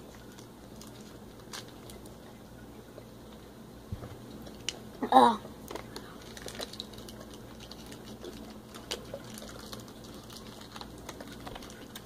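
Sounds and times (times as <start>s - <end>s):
faint steady hum: 0.0s - 12.0s
plastic bottle crinkling: 5.6s - 12.0s.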